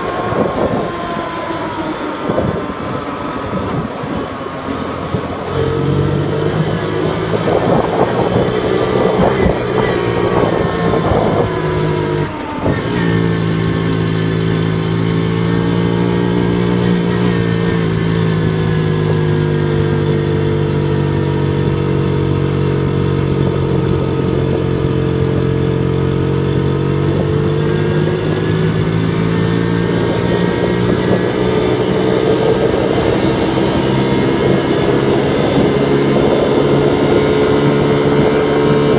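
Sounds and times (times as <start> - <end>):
small motorcycle engine running: 0.0 - 38.9.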